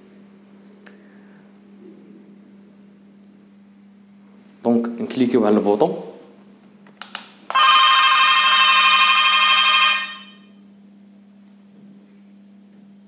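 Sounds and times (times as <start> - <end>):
steady low hum: 0.0 - 13.0
electronic door entry ring: 7.5 - 10.5.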